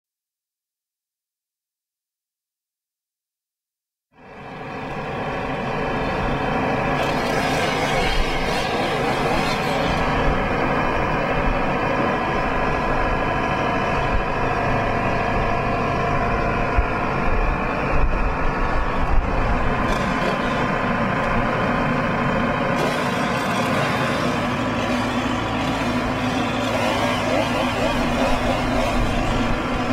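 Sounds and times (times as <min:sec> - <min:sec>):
diesel engine running: 0:04.2 - 0:29.9.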